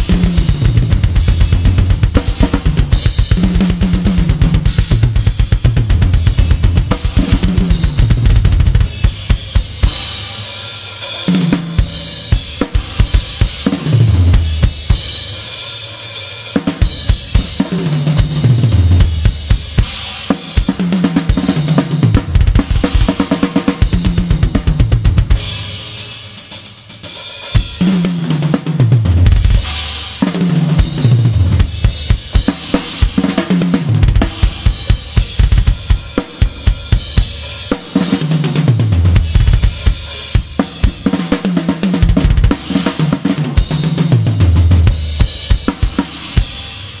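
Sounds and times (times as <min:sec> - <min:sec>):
drum kit groove: 0:00.0 - 0:47.0
cymbal wash: 0:06.2 - 0:18.5, 0:30.8 - 0:38.6.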